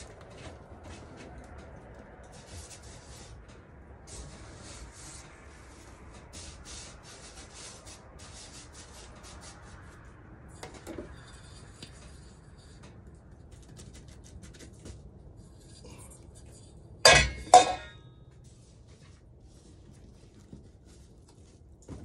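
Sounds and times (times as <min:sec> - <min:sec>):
hand sweeping flour on metal: 0:04.1 - 0:10.0
metal bowl knock: 0:17.1 - 0:18.0.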